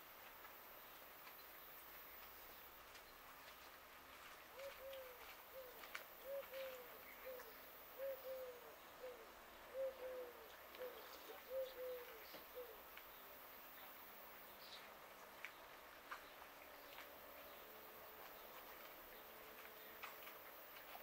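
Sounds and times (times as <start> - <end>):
dove cooing: 4.5 - 12.9.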